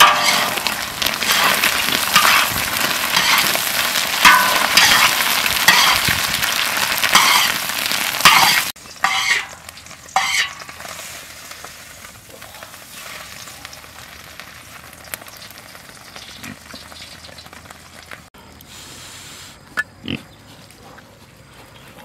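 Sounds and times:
spatula scraping: 0:00.0 - 0:06.2, 0:07.0 - 0:11.1
eggs sizzling in a wok: 0:00.0 - 0:18.9.

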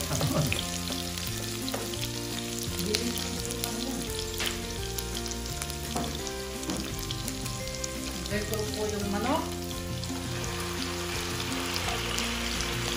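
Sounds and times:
background music: 0:00.0 - 0:12.9
garlic and onion sizzling in oil: 0:00.0 - 0:12.9.

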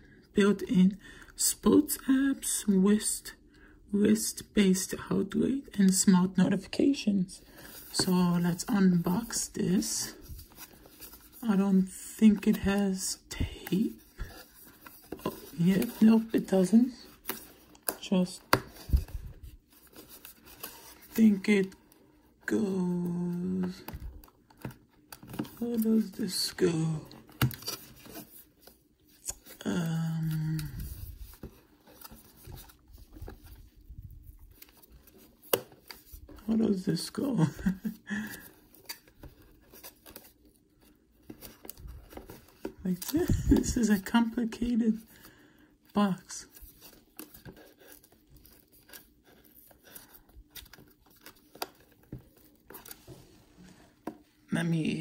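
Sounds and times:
cardboard rustling and scraping: 0:13.7 - 0:21.7, 0:23.6 - 0:29.6, 0:30.3 - 0:36.8.

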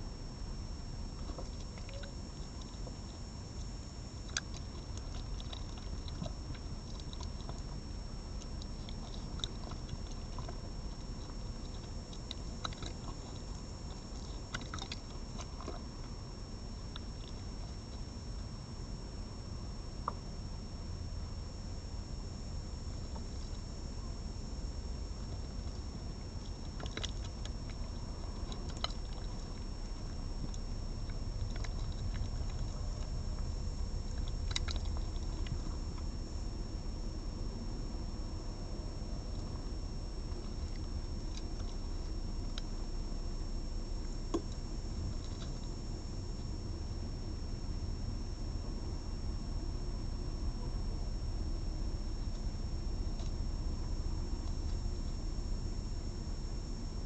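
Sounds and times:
thin high whine: 0:00.0 - 0:57.0
small clicks and ticks: 0:00.1 - 0:19.0, 0:21.6 - 0:36.4, 0:39.2 - 0:47.4, 0:52.2 - 0:57.0
fox chewing meat: 0:00.9 - 0:19.0, 0:22.8 - 0:47.3.

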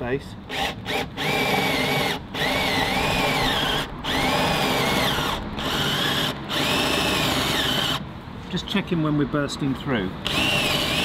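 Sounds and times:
cordless drill boring through wood: 0:00.5 - 0:08.0, 0:10.2 - 0:11.0.

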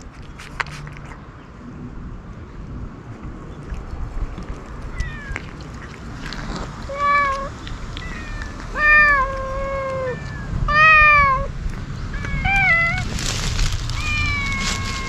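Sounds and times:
crackling rustle: 0:00.0 - 0:01.3, 0:03.1 - 0:10.5, 0:11.6 - 0:15.0
cats meowing: 0:04.8 - 0:05.9, 0:06.8 - 0:11.5, 0:12.1 - 0:13.2, 0:13.9 - 0:15.0.

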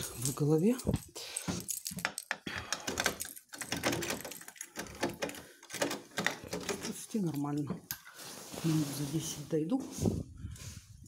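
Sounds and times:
key clicking in door lock: 0:01.8 - 0:07.6.

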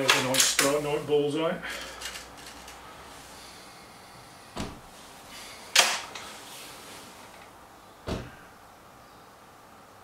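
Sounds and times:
light thump: 0:08.0 - 0:08.4.

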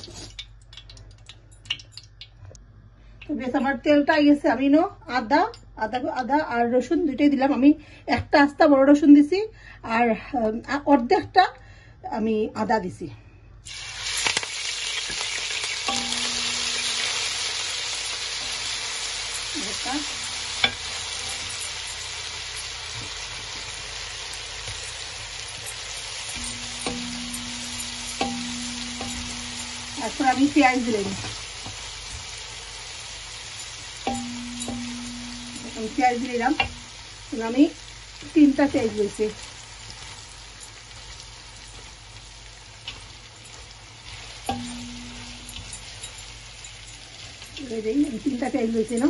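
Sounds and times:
sizzling in hot oil: 0:00.0 - 0:02.3, 0:13.6 - 0:49.0.

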